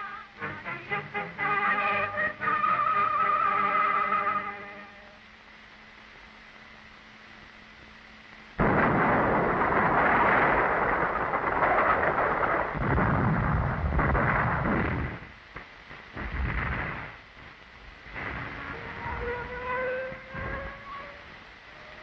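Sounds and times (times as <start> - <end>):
gunfire: 8.6 - 17.2
explosions: 8.6 - 19.4.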